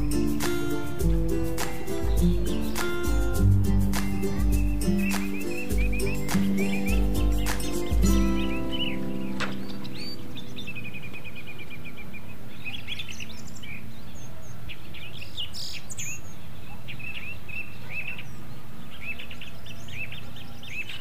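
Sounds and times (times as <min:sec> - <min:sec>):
bird trill: 0:00.0 - 0:21.0
small birds chirping: 0:00.0 - 0:21.0.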